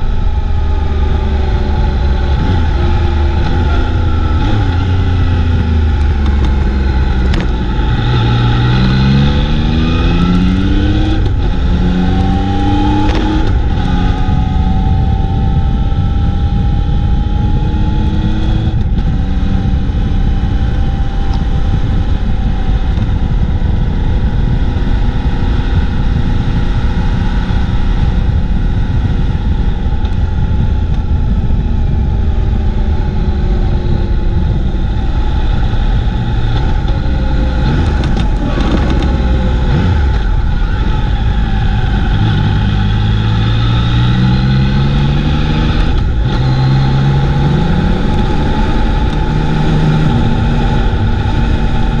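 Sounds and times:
motorcycle engine running: 0.0 - 52.0
wind rumble on microphone: 0.0 - 52.0.

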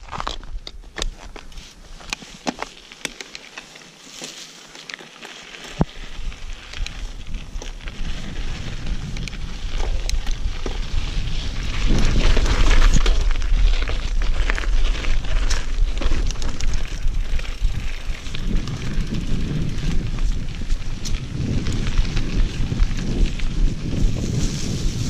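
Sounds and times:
bike clicking and rattling: 0.0 - 25.0
tyres crunching on loose ground: 0.0 - 25.0
wind rumble on microphone: 5.8 - 25.0.

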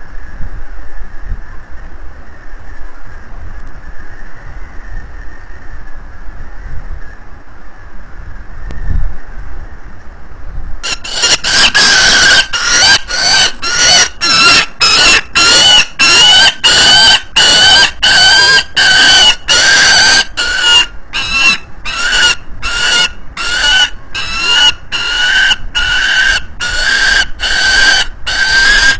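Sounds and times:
falcon screaming calls: 10.8 - 28.9.

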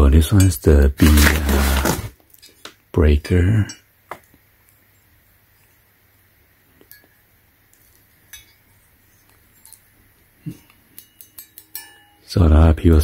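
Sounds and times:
metallic clinks and taps: 6.8 - 8.6, 10.7 - 12.3.

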